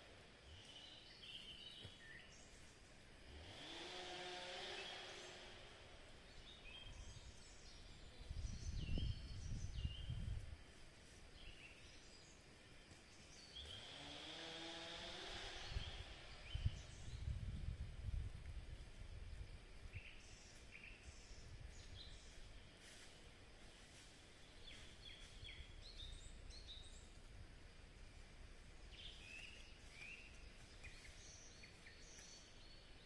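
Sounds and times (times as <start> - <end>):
small birds chirping: 0.4 - 2.9, 4.6 - 10.4, 11.2 - 14.2, 19.3 - 22.7, 24.0 - 33.0
distant engine rising in pitch: 3.2 - 7.1, 13.6 - 17.3.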